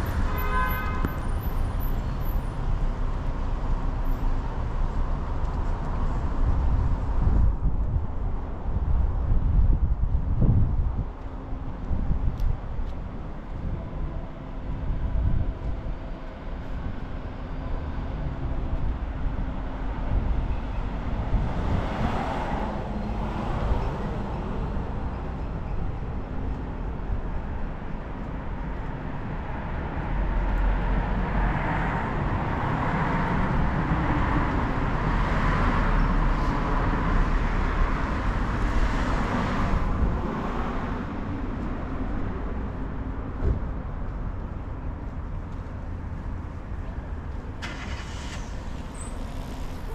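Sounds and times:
cars driving along road: 0.0s - 49.9s
car passing: 47.3s - 49.9s.

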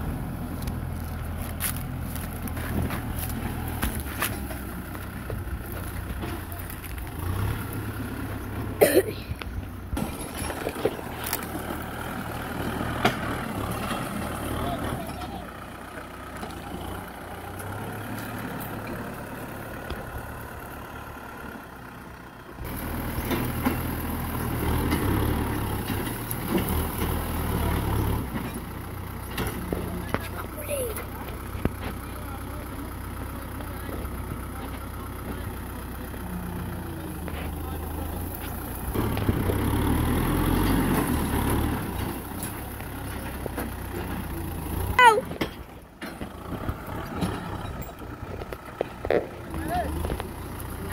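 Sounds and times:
blade pushing soil and brush: 0.0s - 15.3s, 33.6s - 44.9s
tractor diesel engine running: 0.0s - 50.9s.

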